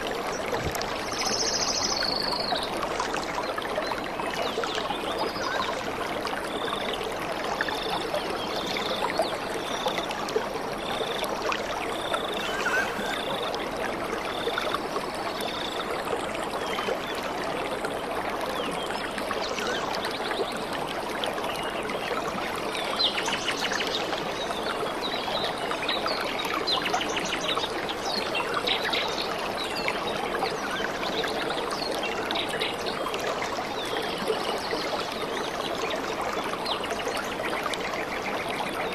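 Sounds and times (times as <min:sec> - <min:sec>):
stream trickling: 0:00.0 - 0:38.9
short high note: 0:12.4 - 0:13.5.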